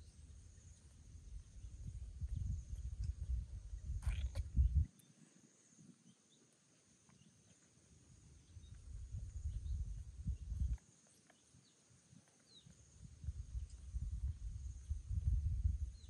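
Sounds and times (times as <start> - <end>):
wind buffeting microphone: 1.2 - 4.9, 8.4 - 10.8, 13.0 - 16.0.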